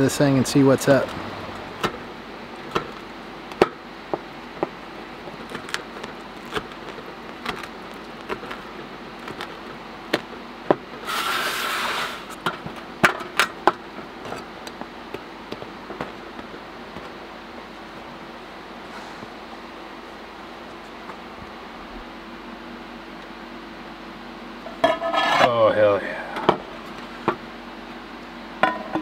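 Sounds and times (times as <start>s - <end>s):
knife crunching through crust: 5.3s - 10.3s.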